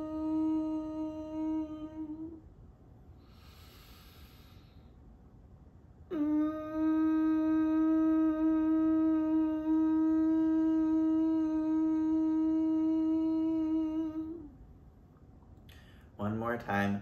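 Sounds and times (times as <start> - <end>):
person humming: 0.0 - 2.4, 6.1 - 14.6.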